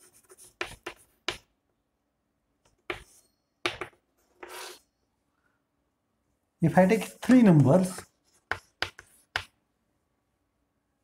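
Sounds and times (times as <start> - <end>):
chalk writing on blackboard: 0.0 - 1.5, 2.8 - 4.8, 6.7 - 9.6.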